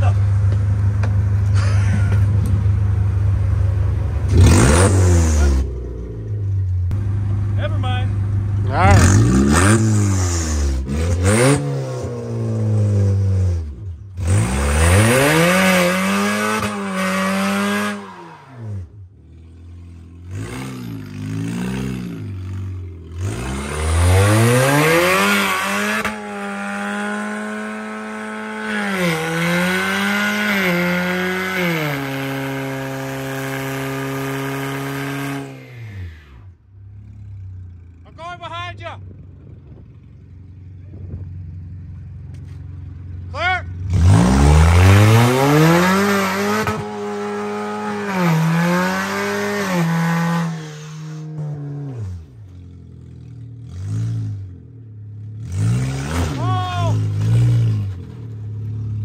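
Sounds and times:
car engine revving hard: 0:04.3 - 0:05.8, 0:08.7 - 0:18.9, 0:20.2 - 0:36.2, 0:43.8 - 0:52.4, 0:53.6 - 0:54.6, 0:55.3 - 0:58.1.

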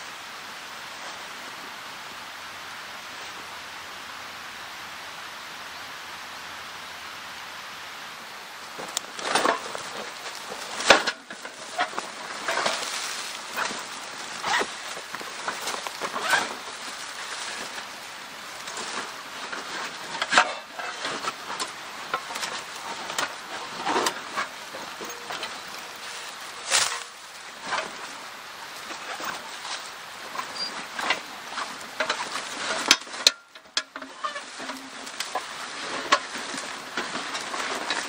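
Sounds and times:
dry leaves crackling: 0:08.6 - 0:38.0
fabric sack rustling: 0:08.8 - 0:32.9.

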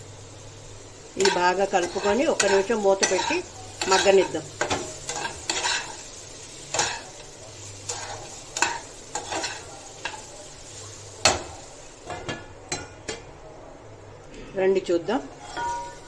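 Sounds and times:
food sizzling: 0:00.0 - 0:16.0
spatula scraping a frying pan: 0:01.2 - 0:11.4, 0:15.3 - 0:16.0.

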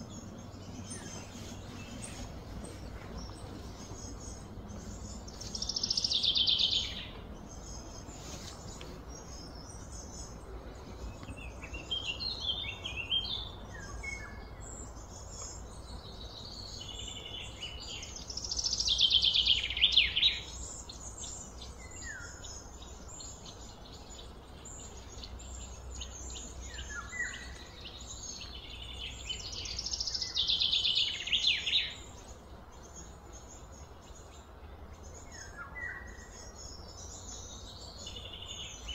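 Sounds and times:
steady low hum: 0:00.0 - 0:19.4
birds singing and chirping: 0:00.0 - 0:38.9.

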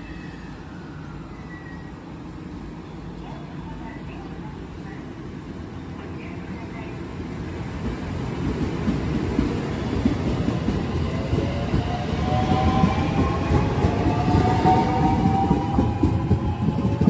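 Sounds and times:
train wheels rumbling on rails: 0:03.4 - 0:17.0.

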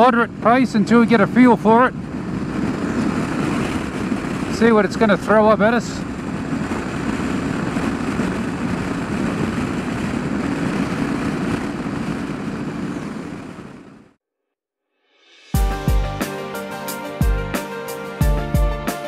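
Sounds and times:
wind noise: 0:00.0 - 0:14.1
motorcycle engine cruising: 0:01.2 - 0:14.1.

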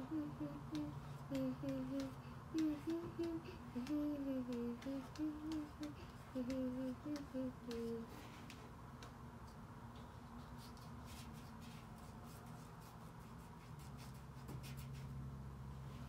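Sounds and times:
girl humming a tune: 0:00.0 - 0:08.4
faint irregular clicks: 0:00.1 - 0:10.9.

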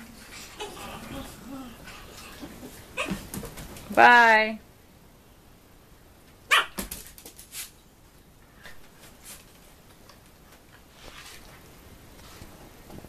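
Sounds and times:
small dog barking: 0:06.5 - 0:06.8
small dog yipping: 0:06.5 - 0:06.8.

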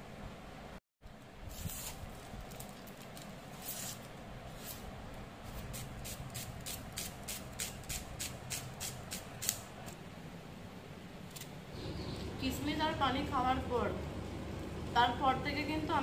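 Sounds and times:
onion skin crackling: 0:01.5 - 0:10.0.

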